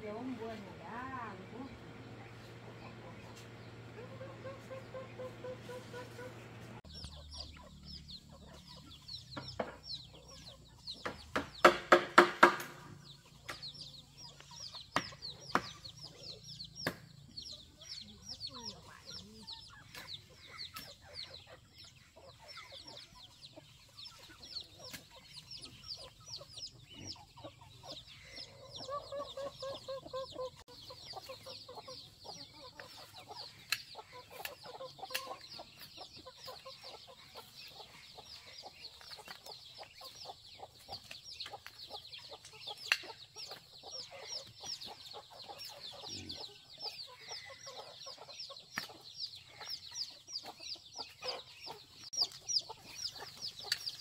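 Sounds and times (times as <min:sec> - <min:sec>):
chicks peeping: 0:00.0 - 0:54.0
hens clucking: 0:00.0 - 0:54.0
sharp knocks: 0:11.0 - 0:13.0.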